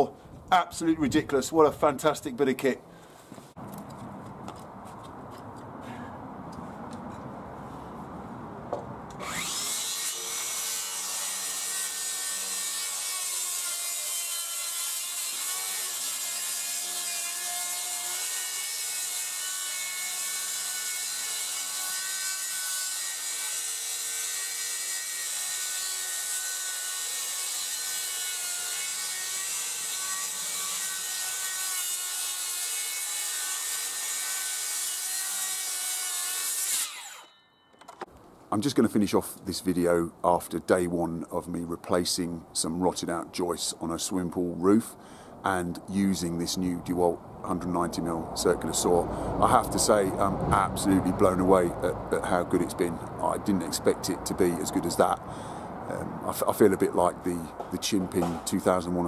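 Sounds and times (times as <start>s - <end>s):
circular saw cutting timber: 9.1s - 37.4s.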